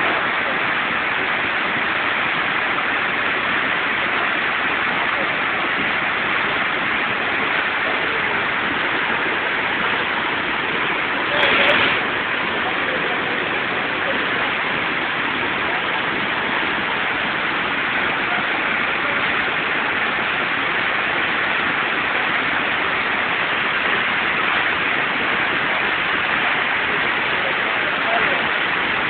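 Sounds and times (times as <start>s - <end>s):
floodwater rushing: 0.0s - 29.0s.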